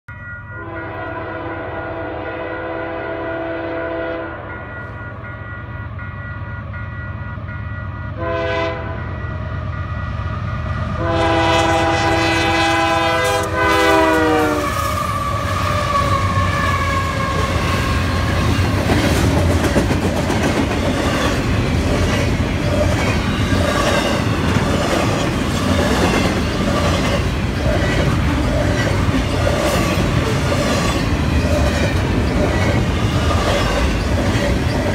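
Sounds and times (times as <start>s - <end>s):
train engines rumbling: 0.1s - 34.9s
locomotive horn blasts: 0.6s - 4.6s, 8.1s - 9.2s, 11.0s - 18.1s.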